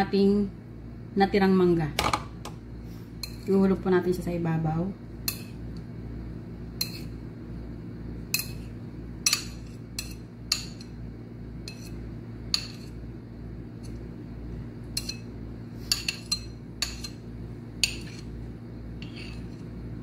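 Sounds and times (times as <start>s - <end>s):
steady low hum: 0.0s - 20.0s
metal spoon clinking on plate: 15.0s - 15.3s, 15.9s - 17.2s, 17.8s - 18.3s.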